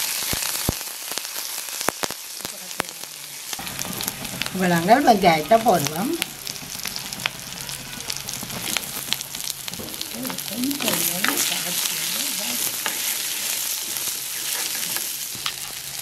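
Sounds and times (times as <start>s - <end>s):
shallots sizzling in hot oil: 0.0s - 16.0s
wooden spatula stirring: 3.6s - 15.9s.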